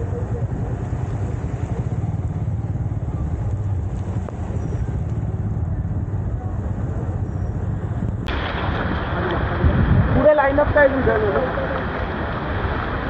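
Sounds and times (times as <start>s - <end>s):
motorcycle engine running: 0.0s - 9.4s.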